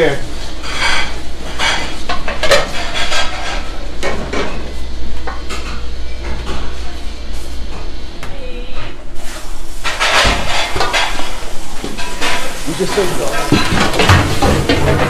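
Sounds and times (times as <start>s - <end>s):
steady low hum: 0.0s - 15.0s
metal pots and pans clattering: 0.6s - 4.6s, 9.8s - 15.0s.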